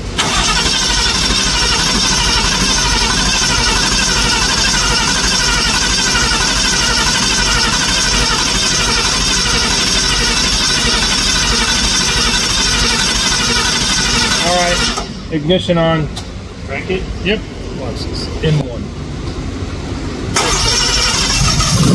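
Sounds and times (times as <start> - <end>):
fuel pump electric whir: 0.0 - 15.3, 20.3 - 21.9.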